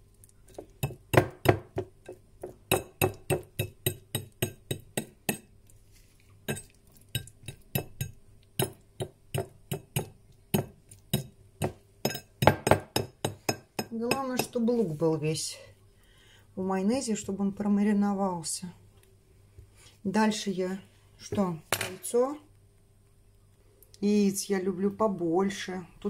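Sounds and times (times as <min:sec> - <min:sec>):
fork clinking on ceramic plate: 0:12.1 - 0:12.3.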